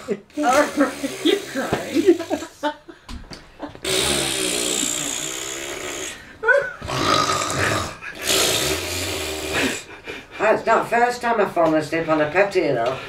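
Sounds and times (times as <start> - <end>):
woman making mock snores: 0.0 - 2.6, 3.8 - 9.9.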